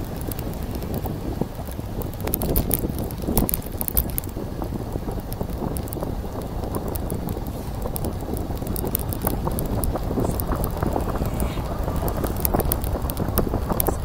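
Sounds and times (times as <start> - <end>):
light clicks and rattles: 0.0 - 14.0
wind rumbling on microphone: 0.0 - 14.0.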